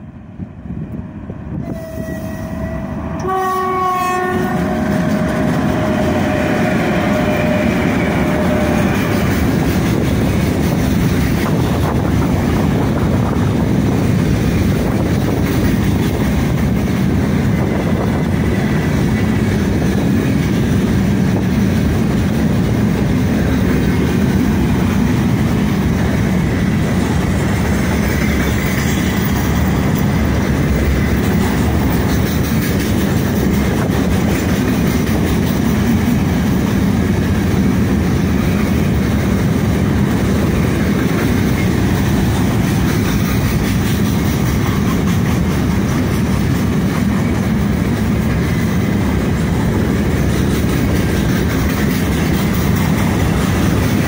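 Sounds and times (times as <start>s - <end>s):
freight train rumbling past: 0.0s - 54.0s
locomotive horn: 1.6s - 9.4s
wheels clacking over rail joints: 4.5s - 54.0s.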